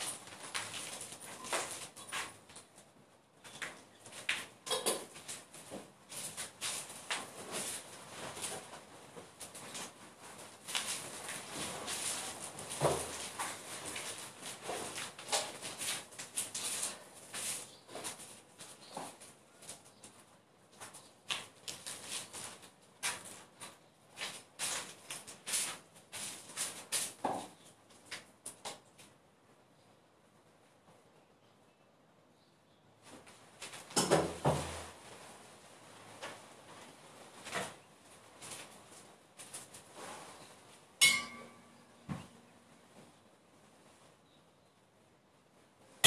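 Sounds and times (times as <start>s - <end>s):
people rustling and shuffling: 5.1s - 27.2s.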